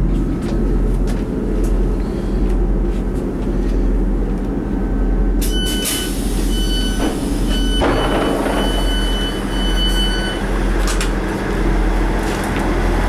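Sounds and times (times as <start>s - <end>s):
diesel engine idling rumble: 0.0s - 13.0s
high door warning beeps: 5.4s - 10.5s.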